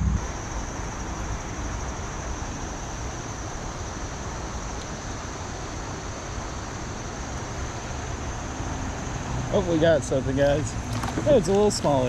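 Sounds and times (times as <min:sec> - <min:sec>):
high-pitched hum: 0:00.0 - 0:08.0
river water rushing: 0:00.0 - 0:12.0.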